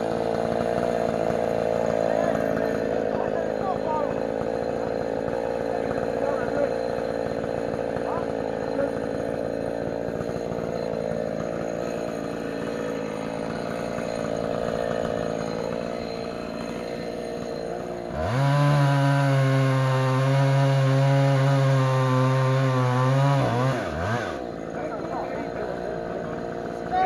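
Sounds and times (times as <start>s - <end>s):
chainsaw engine revving and cutting: 0.0s - 27.0s.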